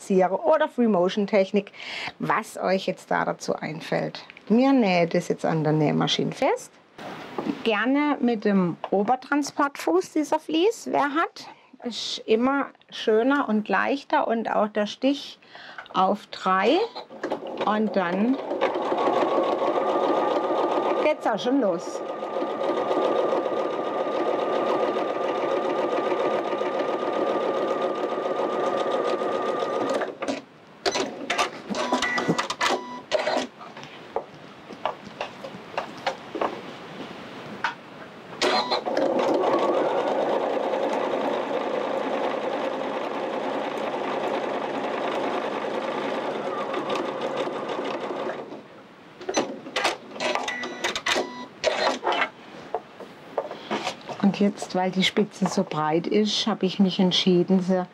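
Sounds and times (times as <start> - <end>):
sewing machine stitching: 17.2 - 33.5, 38.4 - 48.6.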